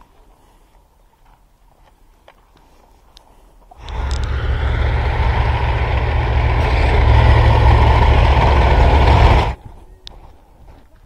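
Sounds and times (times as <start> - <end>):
tracked vehicle rumbling: 3.8 - 9.6.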